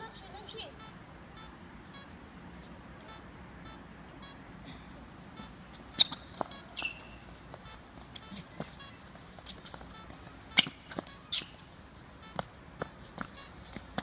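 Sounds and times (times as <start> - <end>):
faint high chirp: 3.0 - 9.1
shoes squeaking on hard court: 4.8 - 14.0.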